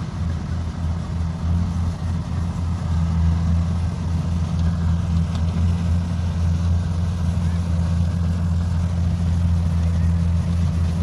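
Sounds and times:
combine harvester engine droning: 0:00.0 - 0:11.0.

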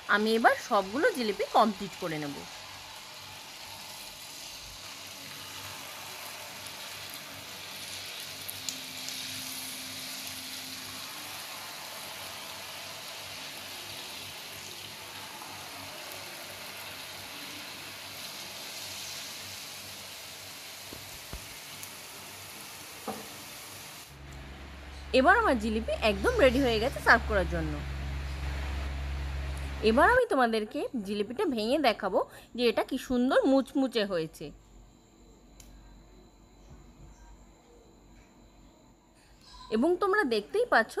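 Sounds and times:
batter sizzling in hot oil: 0:00.0 - 0:24.2.

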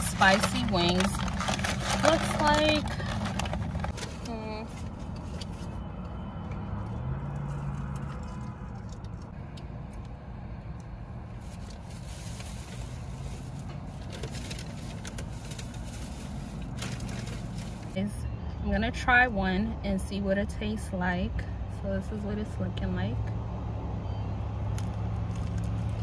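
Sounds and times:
clicks and rustles of takeout box: 0:00.0 - 0:04.3.

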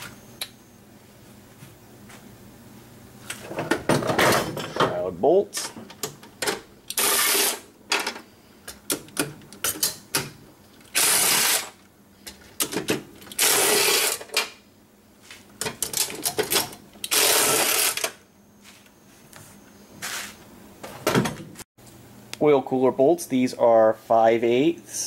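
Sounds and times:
power tool spinning a socket: 0:06.9 - 0:07.6, 0:10.9 - 0:11.7, 0:13.3 - 0:14.2, 0:17.0 - 0:18.1.

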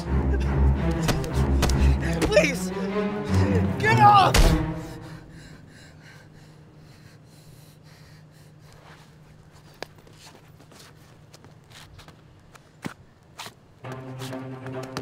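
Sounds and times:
man breathing and sniffing: 0:04.8 - 0:11.2.

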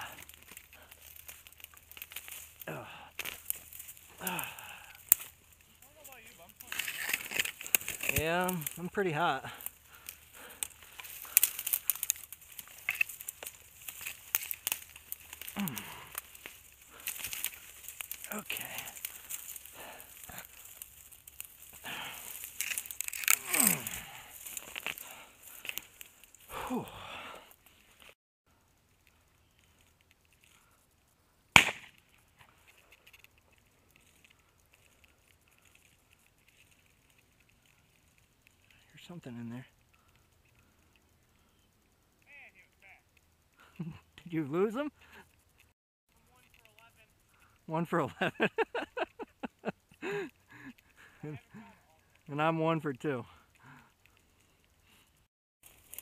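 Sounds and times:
dry brush crackling and snapping: 0:00.0 - 0:47.7, 0:48.4 - 0:52.4, 0:53.0 - 0:56.0
shotgun shot: 0:31.6 - 0:32.0.

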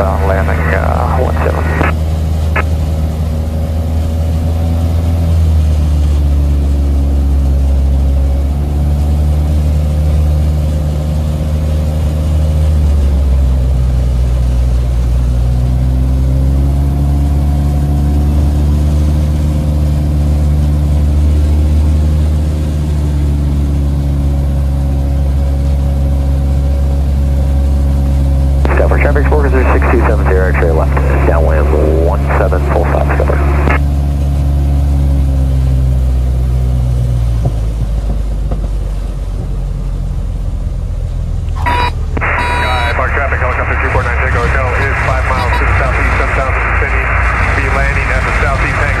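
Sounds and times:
propeller aircraft engine droning: 0:00.0 - 0:49.0.

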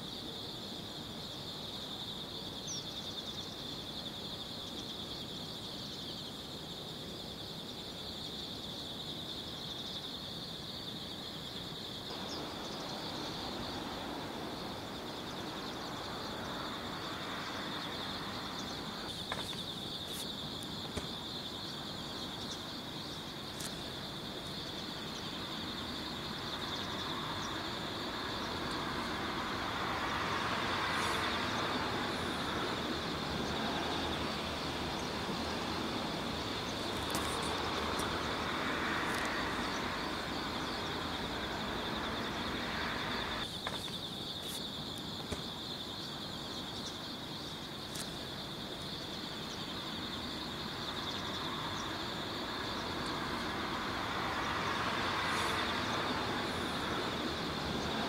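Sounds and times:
high-pitched insect drone: 0:11.8 - 0:44.8
passing vehicles rushing: 0:26.7 - 0:43.4, 0:52.5 - 0:58.0.

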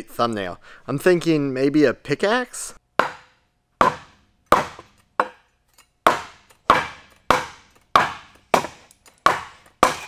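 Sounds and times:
pickaxe knocking on wooden board: 0:03.0 - 0:05.4, 0:06.1 - 0:10.0.

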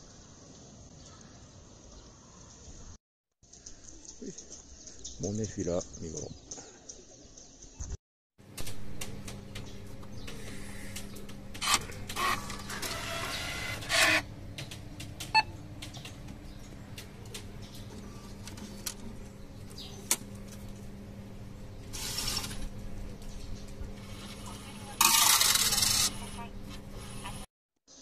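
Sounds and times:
machine whirring and clicking: 0:08.4 - 0:21.0, 0:21.8 - 0:27.5
steady low hum: 0:08.4 - 0:27.5.

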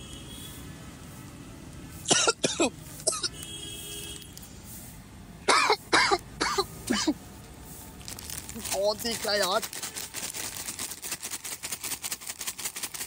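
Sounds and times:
man coughing: 0:02.1 - 0:03.3, 0:05.5 - 0:07.2.

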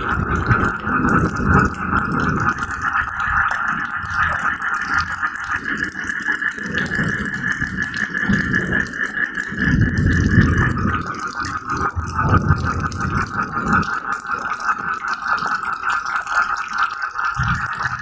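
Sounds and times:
low rolling thunder: 0:00.0 - 0:05.2, 0:06.6 - 0:14.0
steady rain: 0:00.0 - 0:18.0.

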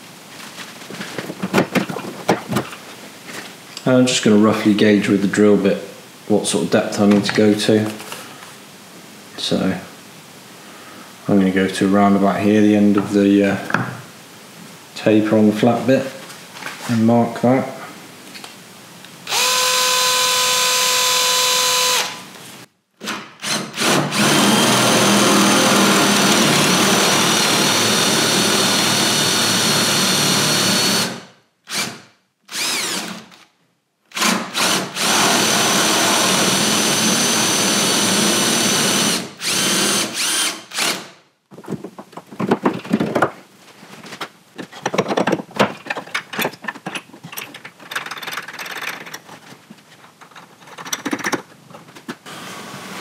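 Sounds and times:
cordless drill boring wood: 0:19.3 - 0:22.3, 0:23.0 - 0:33.4, 0:34.1 - 0:41.1, 0:52.3 - 0:53.0.

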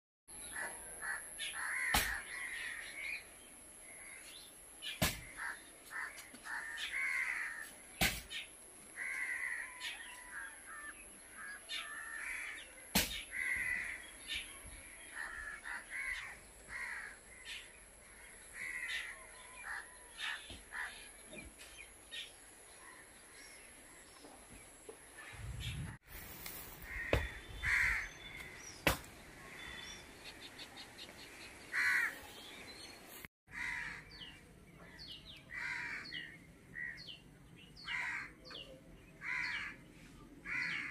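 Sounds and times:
crows cawing: 0:00.5 - 0:02.9, 0:05.2 - 0:07.7, 0:09.0 - 0:12.7, 0:13.3 - 0:14.1, 0:15.1 - 0:21.0, 0:26.8 - 0:28.8, 0:31.7 - 0:32.2, 0:33.5 - 0:34.3, 0:35.5 - 0:37.2, 0:37.8 - 0:38.6, 0:39.2 - 0:39.8, 0:40.4 - 0:40.9.

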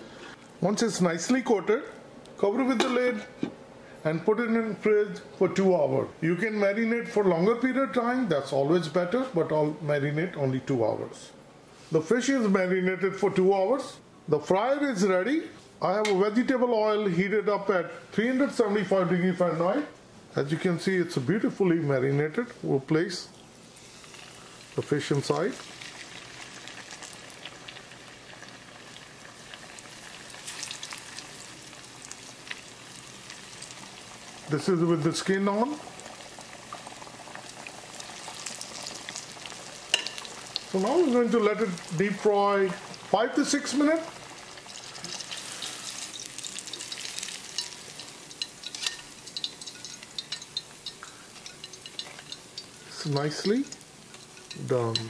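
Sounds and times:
fish deep-frying in oil: 0:23.5 - 0:55.0.

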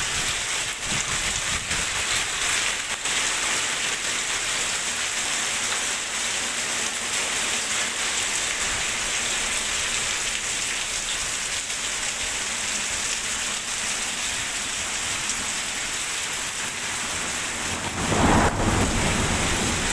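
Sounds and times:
heavy rain falling: 0:00.0 - 0:19.9
low rumble: 0:17.6 - 0:19.9.

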